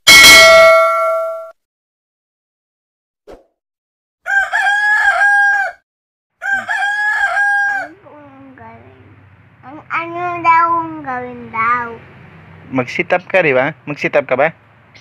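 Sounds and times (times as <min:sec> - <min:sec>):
rooster crowing: 0:04.2 - 0:05.8, 0:06.4 - 0:08.0.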